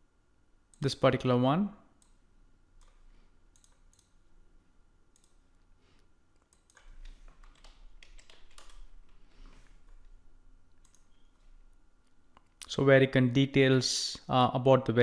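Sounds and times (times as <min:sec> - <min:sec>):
computer keyboard keystrokes: 0:02.8 - 0:04.1, 0:06.4 - 0:09.2, 0:10.8 - 0:11.1.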